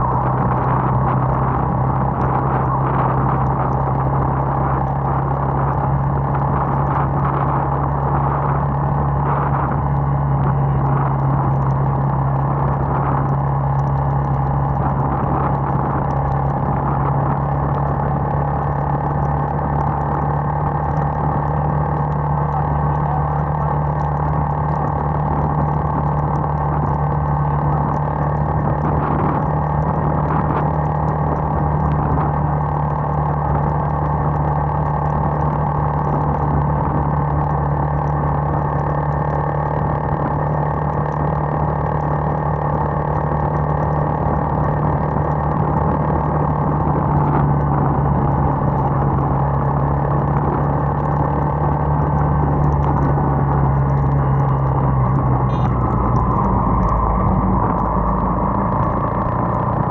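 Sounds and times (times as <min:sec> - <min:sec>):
motorcycle engine cruising: 0:00.0 - 0:59.9
wind and road noise: 0:00.0 - 0:59.9.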